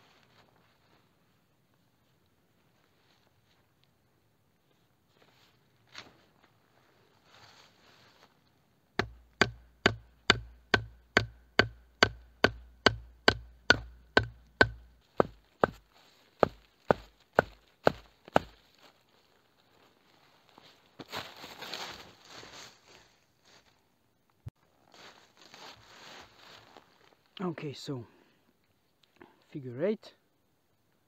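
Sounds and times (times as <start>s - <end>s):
wood chopping strokes: 9.0s - 18.6s.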